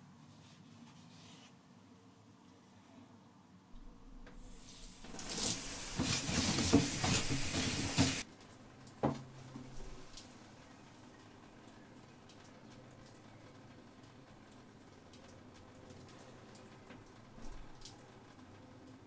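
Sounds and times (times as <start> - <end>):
shower water spraying: 4.2 - 8.3
knock: 6.0 - 8.2.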